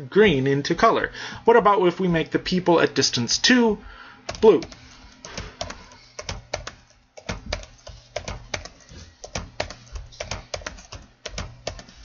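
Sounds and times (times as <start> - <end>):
computer keyboard typing: 4.3 - 12.0.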